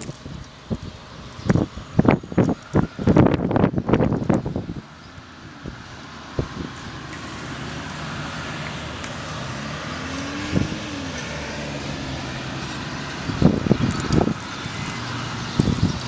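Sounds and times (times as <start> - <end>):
city street traffic rumble: 0.0 - 16.0
wind: 0.0 - 16.0
engine tone rising and falling: 5.6 - 16.0.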